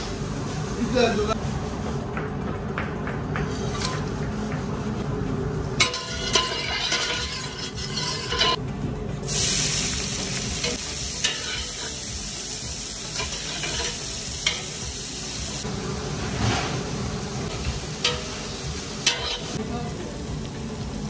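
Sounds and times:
spatula stirring: 5.8s - 8.6s, 13.2s - 14.6s
onions sizzling in hot oil: 9.3s - 19.6s.

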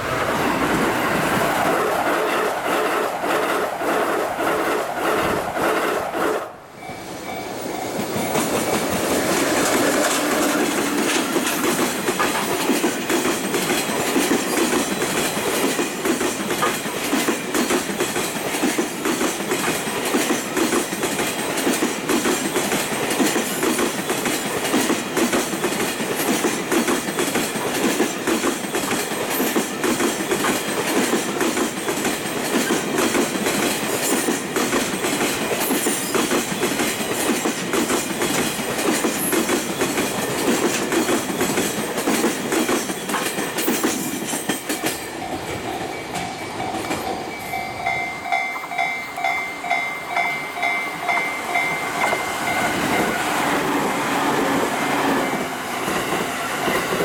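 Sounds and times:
train wheels clattering over rail joints: 7.1s - 48.9s.

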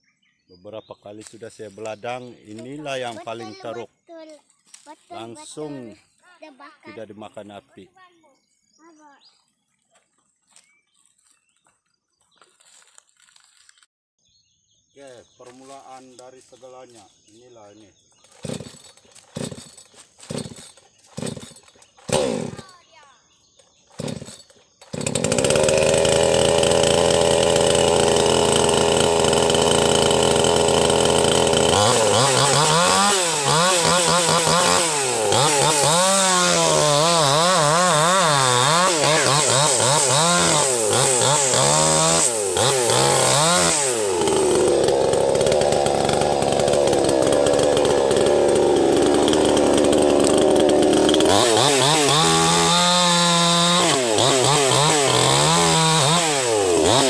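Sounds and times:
chainsaw cutting wood: 1.7s - 3.8s, 18.2s - 23.0s, 23.6s - 57.0s.

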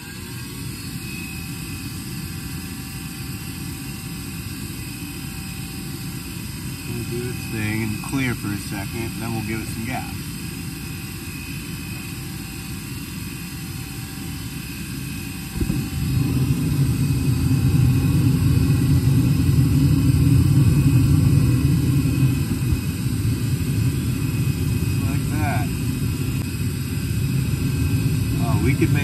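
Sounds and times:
furnace blower running: 0.0s - 29.0s
low-pitched burning noise: 0.0s - 29.0s
burners lighting: 14.9s - 29.0s.

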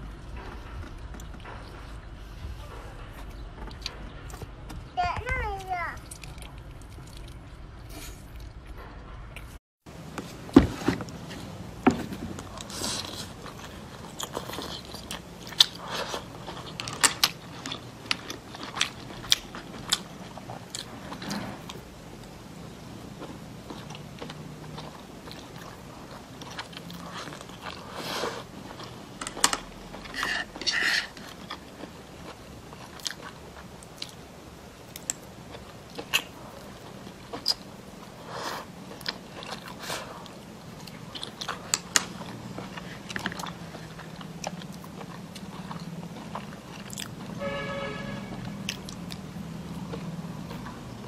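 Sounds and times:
person chewing: 6.0s - 8.6s, 11.1s - 51.0s.

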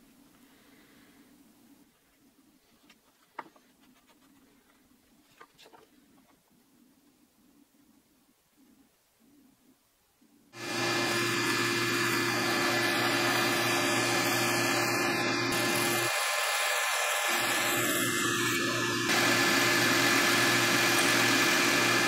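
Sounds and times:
bandsaw cutting wood: 10.6s - 22.0s.

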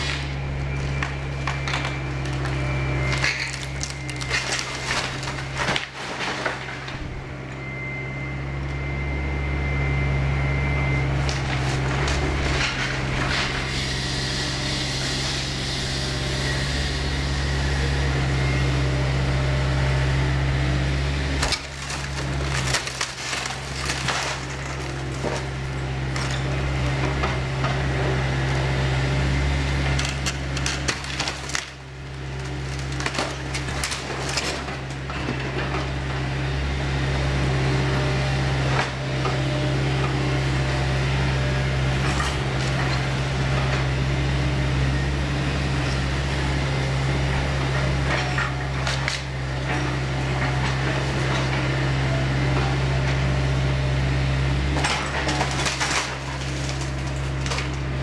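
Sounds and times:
wood cracking and splintering: 0.0s - 7.0s, 11.1s - 13.8s, 21.3s - 28.8s, 29.7s - 36.1s, 41.9s - 44.0s, 48.1s - 51.6s, 54.7s - 58.0s
debris clattering down: 0.0s - 7.1s, 21.3s - 27.8s, 29.8s - 35.9s, 54.8s - 57.9s
excavator diesel engine running: 0.0s - 58.0s.

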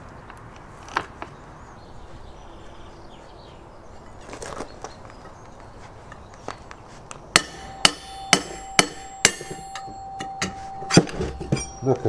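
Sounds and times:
metal tools knocking on rail: 7.4s - 12.0s.

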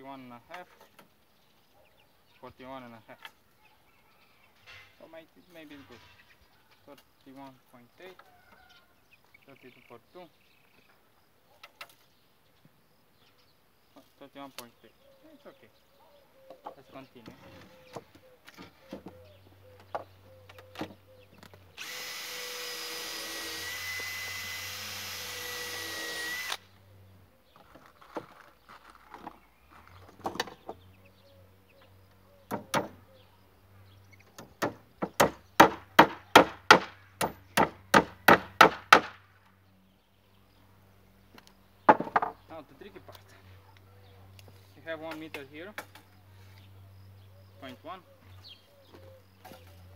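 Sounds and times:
power drill whine: 21.8s - 26.6s
timber knocks: 32.5s - 33.0s, 41.9s - 42.4s.

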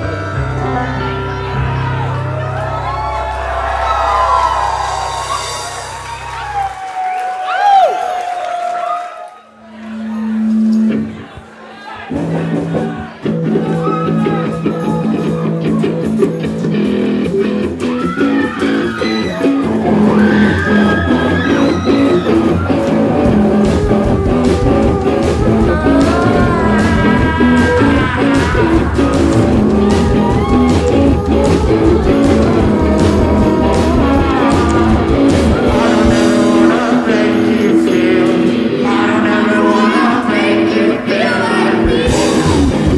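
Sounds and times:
person singing: 0.0s - 2.5s, 17.9s - 42.9s
live rock band playing: 0.0s - 6.7s, 12.1s - 42.9s
held electric guitar notes: 13.2s - 40.0s.

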